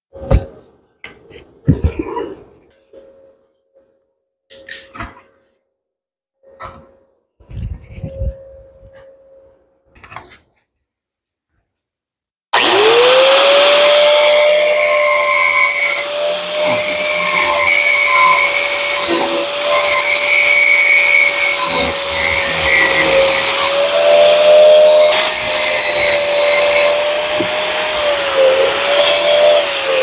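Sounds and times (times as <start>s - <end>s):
angle grinder grinding weld: 12.6s - 30.0s.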